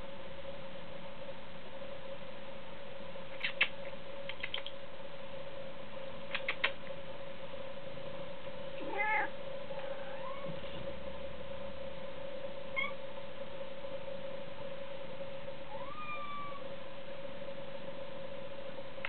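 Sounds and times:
faint steady hum: 0.0s - 19.0s
sharp clicks: 3.4s - 4.8s, 6.3s - 6.8s
cat meowing: 8.8s - 9.3s, 10.0s - 10.6s, 15.7s - 16.6s.

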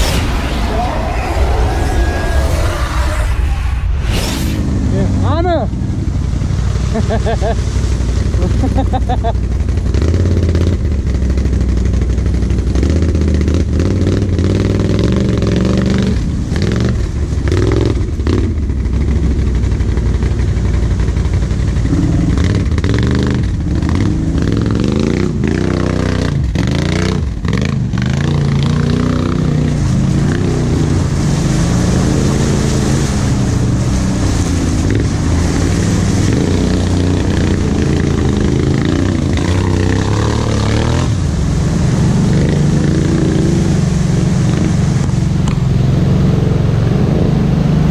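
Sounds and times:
mud and water splashing: 0.0s - 47.9s
quad engine revving: 8.3s - 19.2s, 21.6s - 47.9s.

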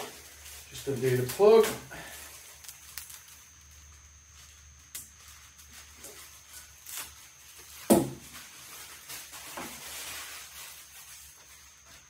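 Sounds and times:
soft rustle: 0.0s - 12.0s.

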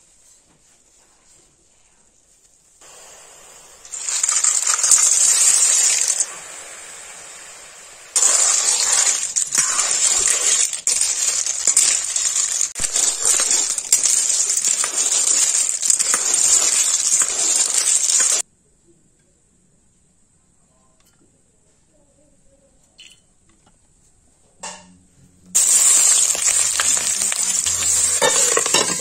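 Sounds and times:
cooking hiss: 0.0s - 18.5s, 25.5s - 29.0s
clinks and clatter: 25.6s - 29.0s.

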